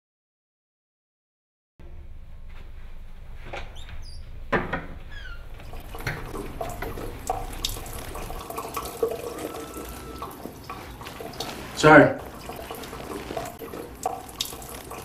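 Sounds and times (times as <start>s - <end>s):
water running in washroom: 4.6s - 15.0s
toilet door clunking open: 5.6s - 7.9s.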